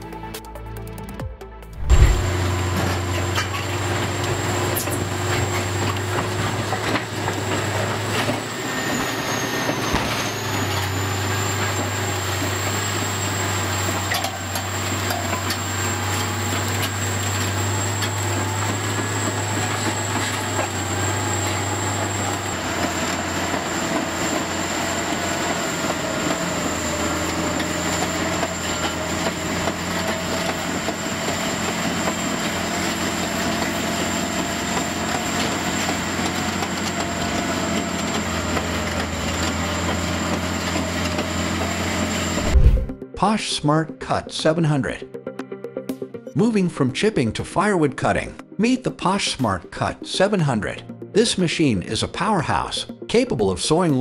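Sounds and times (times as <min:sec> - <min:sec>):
bulldozer diesel engine drone: 0:00.0 - 0:43.1.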